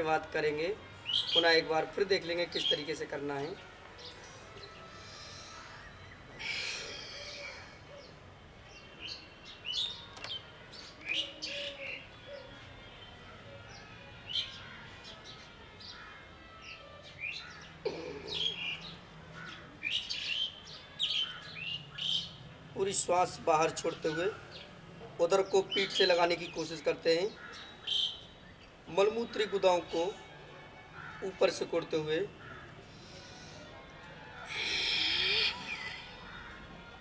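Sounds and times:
small birds chirping: 0:04.0 - 0:29.6, 0:34.4 - 0:37.0.

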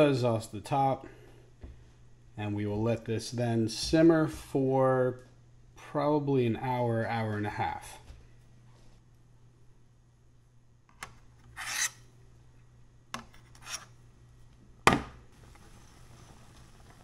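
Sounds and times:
faint low hum: 0:00.0 - 0:17.0
metal spoon scraping pan: 0:11.6 - 0:12.0.

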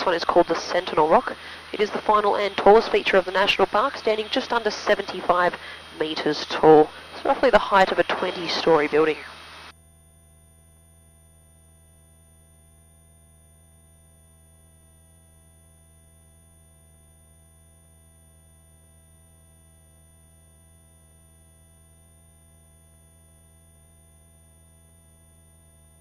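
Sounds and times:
helicopter drone through intercom: 0:00.0 - 0:09.4.

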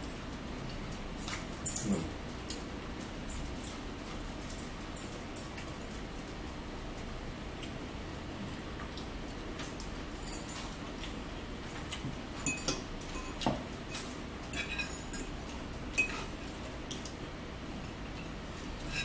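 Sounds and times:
forks clinking on ceramic plates: 0:09.6 - 0:11.1, 0:11.7 - 0:17.2, 0:18.1 - 0:19.0.

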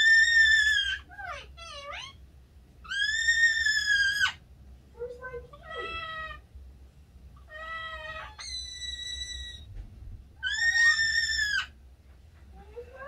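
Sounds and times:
parakeet whistled calls: 0:08.2 - 0:09.7, 0:10.4 - 0:11.7.

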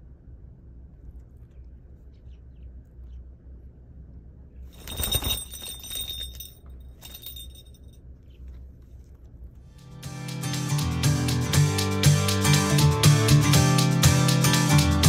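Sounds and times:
rustle of bird feathers: 0:04.7 - 0:06.0
high metallic jingle: 0:04.7 - 0:08.0.

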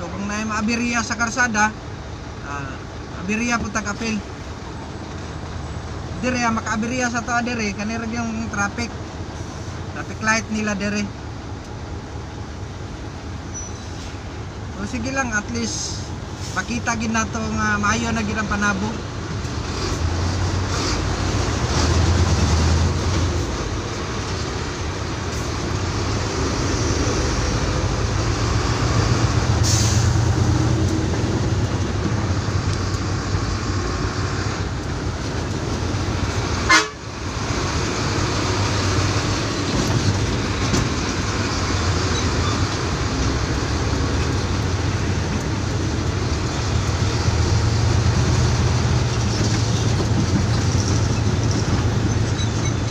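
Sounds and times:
road noise: 0:00.0 - 0:52.9
truck engine running: 0:00.0 - 0:52.9.

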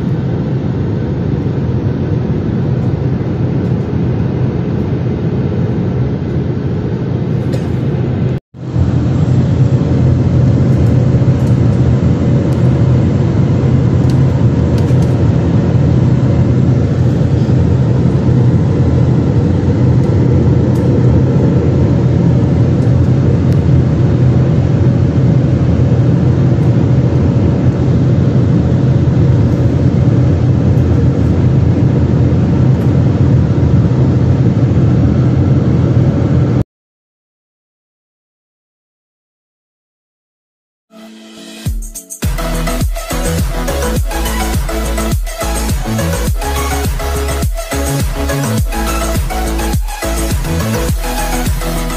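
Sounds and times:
jet engine drone: 0:00.0 - 0:36.6, 0:41.0 - 0:51.9
rushing airflow: 0:00.0 - 0:36.6.

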